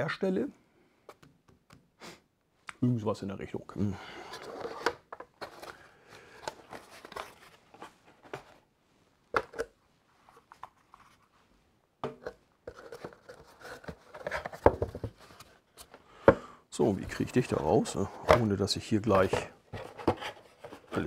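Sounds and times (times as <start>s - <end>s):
cardboard rustling: 4.3s - 8.7s, 12.7s - 15.9s, 18.2s - 21.0s.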